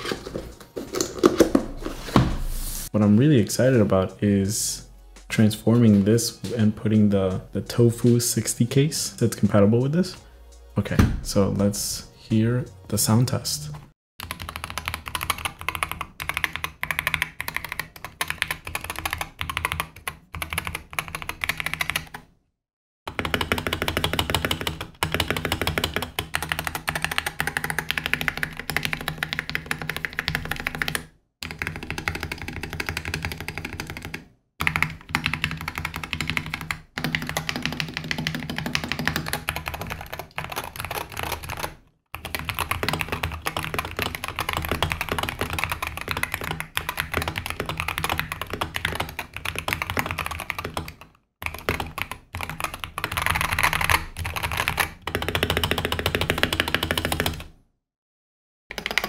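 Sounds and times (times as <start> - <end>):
keyboard typing clacks: 14.2 - 22.2, 23.1 - 57.5, 58.7 - 59.0.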